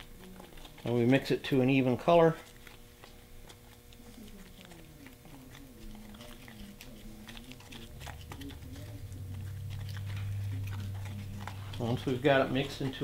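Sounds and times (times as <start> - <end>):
filler stirring in bowl: 0.0 - 13.0
low hum: 7.4 - 12.6.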